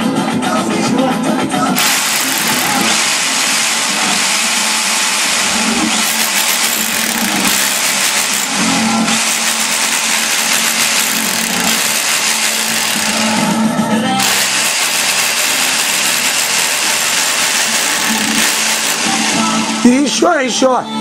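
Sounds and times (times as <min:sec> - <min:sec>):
rotary hammer drilling into wall: 0:01.8 - 0:13.6, 0:14.2 - 0:19.7.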